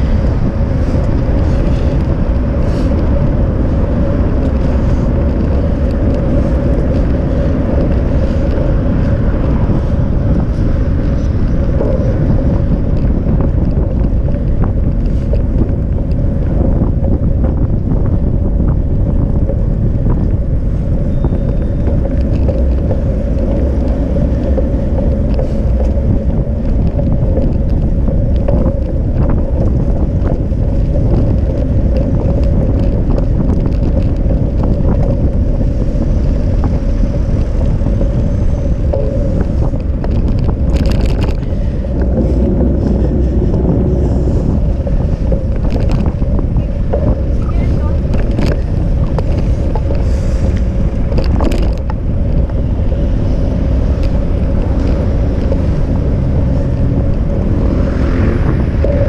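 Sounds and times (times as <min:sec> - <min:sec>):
rolling rumble and hum: 0:00.0 - 0:59.0
wind on microphone: 0:00.0 - 0:59.0.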